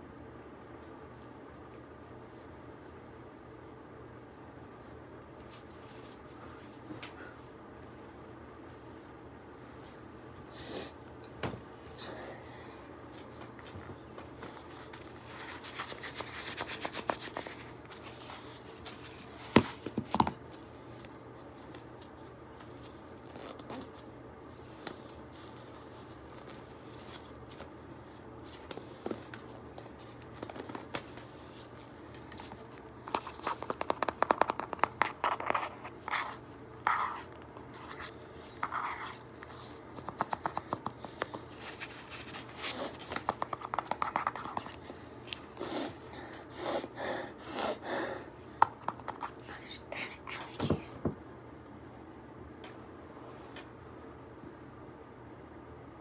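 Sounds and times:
quick taps and crackles: 32.1s - 36.2s, 39.8s - 41.9s, 43.0s - 44.8s, 48.6s - 49.4s.

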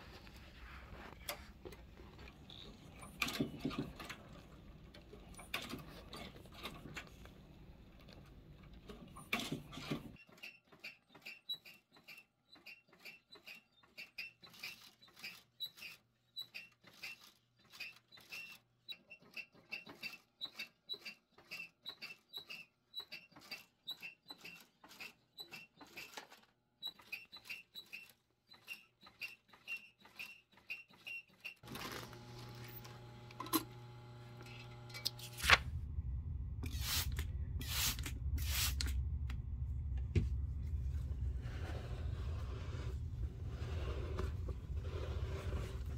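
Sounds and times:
low motor hum: 31.7s - 45.9s.

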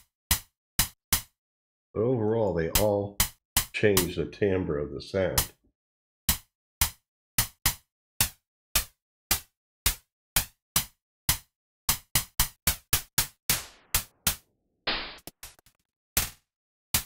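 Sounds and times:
synthesized snare drum hits: 13.5s - 15.5s.

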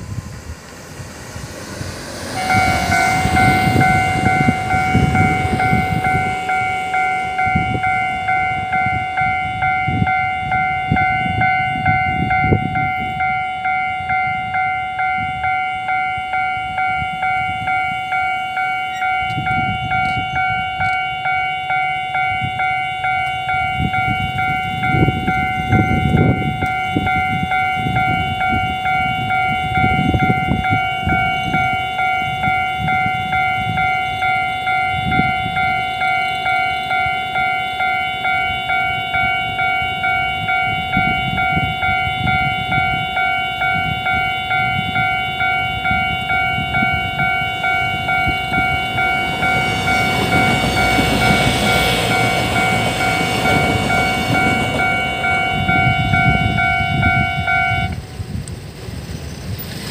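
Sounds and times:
low rumbles: 0.0s - 13.2s
level crossing bell dinging: 2.4s - 58.0s.

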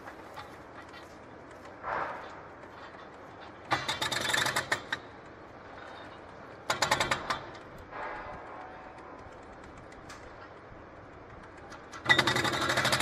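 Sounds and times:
hydraulic breaker hammering concrete: 11.9s - 13.0s.

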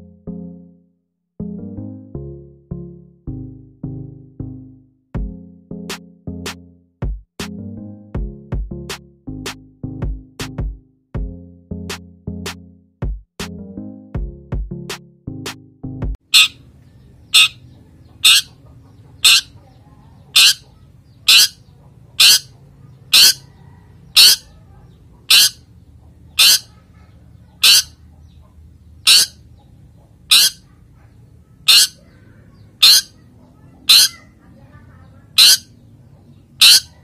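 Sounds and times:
shrike short sharp calls: 16.3s - 16.6s, 17.3s - 17.6s, 18.2s - 18.5s, 19.2s - 19.6s, 20.3s - 21.6s, 22.2s - 23.5s, 24.1s - 24.4s, 25.3s - 25.6s, 26.4s - 26.8s, 27.6s - 28.0s, 29.0s - 29.4s, 30.3s - 30.7s, 31.6s - 32.2s, 32.8s - 33.2s, 33.8s - 34.4s, 35.4s - 35.7s, 36.6s - 37.0s.

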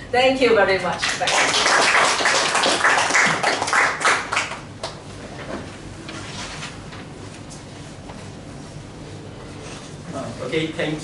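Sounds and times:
audience applauding: 1.0s - 5.0s.

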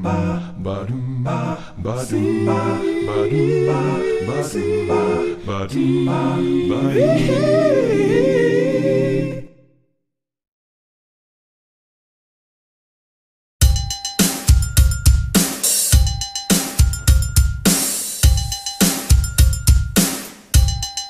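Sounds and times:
a cappella group singing chords: 0.0s - 9.8s.

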